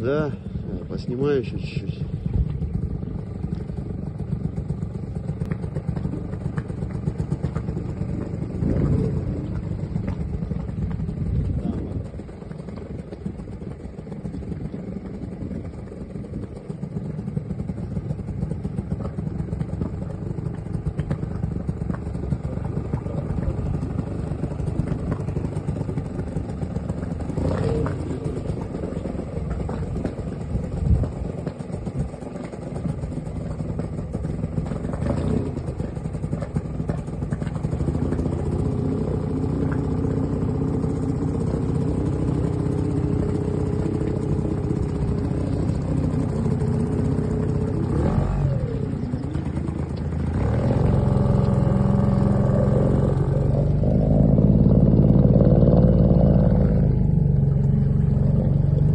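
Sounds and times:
small boat motor running: 0.0 - 58.9.

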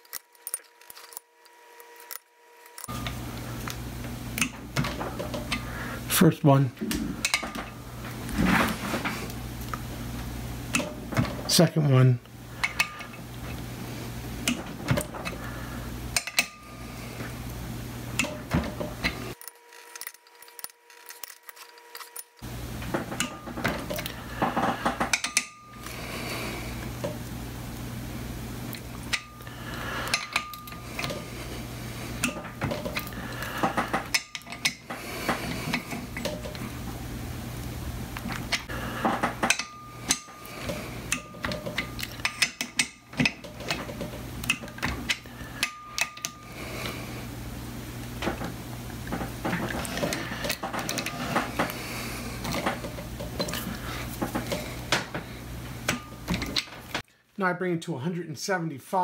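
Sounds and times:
metal socket clinking on nuts: 44.4 - 46.4.

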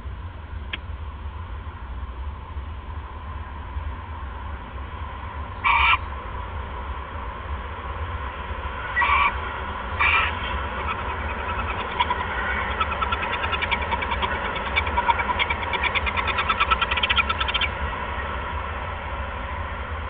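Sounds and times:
low electrical hum: 0.0 - 20.0
owl clicking: 10.8 - 17.7.

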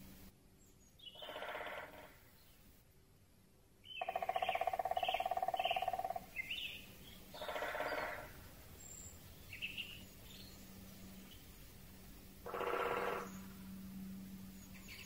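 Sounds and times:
small birds chirping: 0.6 - 2.8, 3.8 - 11.8, 14.4 - 15.0
woodpecker drumming on tree: 1.1 - 2.4, 4.0 - 8.5, 12.4 - 13.5.

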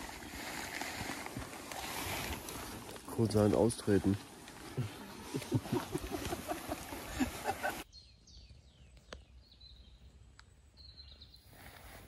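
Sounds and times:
small birds chirping: 2.5 - 12.0.

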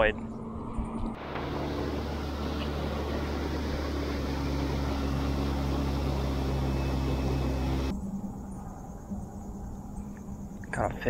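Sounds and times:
outboard motor running: 1.2 - 7.9.

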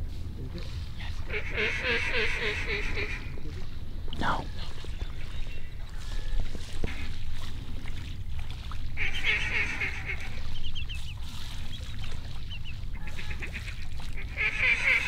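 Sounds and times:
duck quacking: 1.0 - 3.4, 9.0 - 10.5, 13.0 - 15.0.

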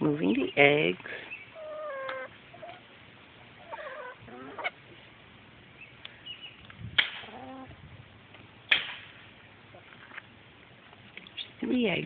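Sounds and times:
hen giving short calls: 1.5 - 2.9, 3.6 - 4.9.

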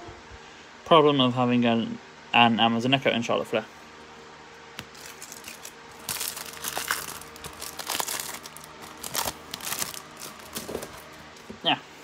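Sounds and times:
plastic wrapper crinkling: 4.8 - 11.2.

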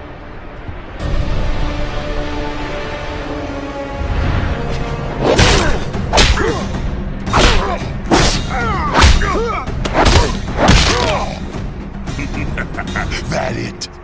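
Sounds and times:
low music drone: 0.0 - 14.0.

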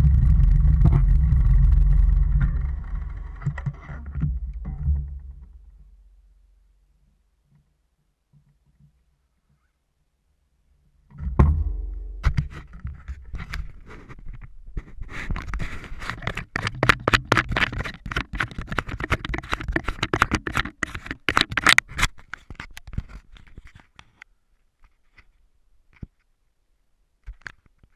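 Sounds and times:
fingers scraping camera housing: 12.4 - 23.8.

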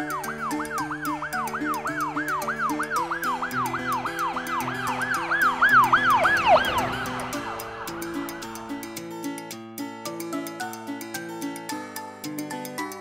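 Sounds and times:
ambulance siren wailing: 0.0 - 8.8
background music: 0.0 - 13.0.

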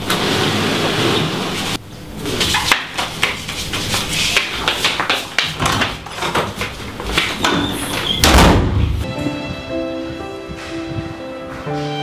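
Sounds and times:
footsteps on hard floor: 2.9 - 12.0.

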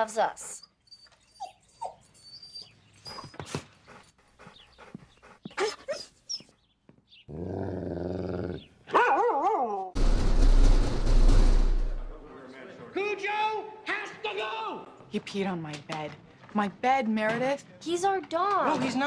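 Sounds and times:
dog whimpering and yipping: 0.5 - 3.5, 5.6 - 6.5
dog whining: 0.5 - 6.6
dog growling: 7.3 - 8.8.

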